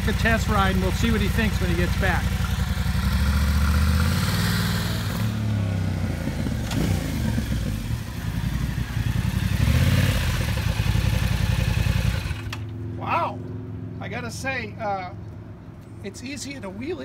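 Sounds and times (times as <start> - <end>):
motorcycle engine revving: 0.0 - 12.8.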